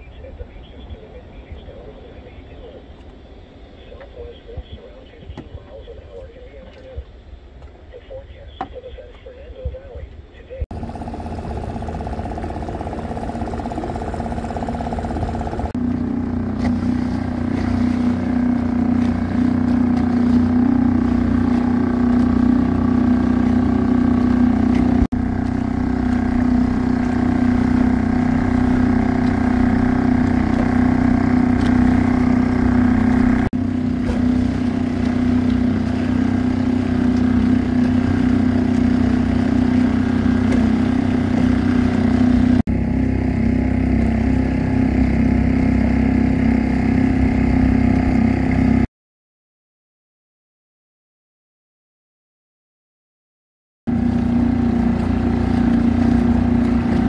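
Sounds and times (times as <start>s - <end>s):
outboard motor running: 10.7s - 48.9s, 53.9s - 57.0s.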